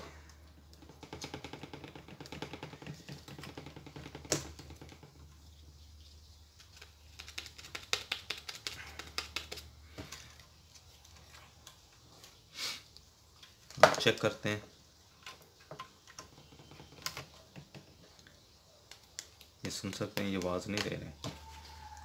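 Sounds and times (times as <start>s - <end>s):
clicking and rattling of wires: 0.0s - 5.3s.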